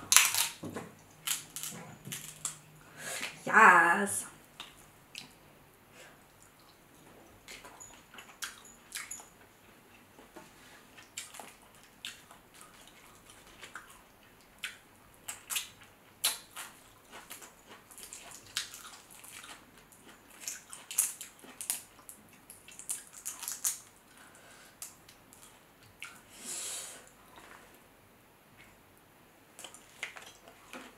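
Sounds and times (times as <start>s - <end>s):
chewing and mouth sounds: 11.0s - 24.2s.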